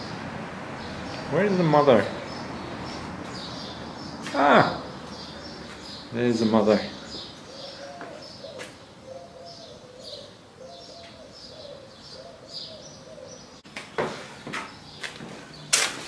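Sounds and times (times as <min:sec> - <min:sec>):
small birds chirping: 0:00.8 - 0:15.9
dove cooing: 0:07.0 - 0:13.6.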